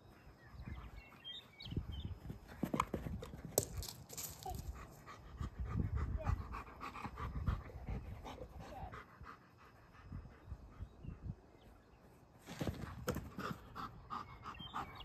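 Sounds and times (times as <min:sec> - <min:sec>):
dog panting: 0:04.6 - 0:11.4, 0:13.3 - 0:15.0.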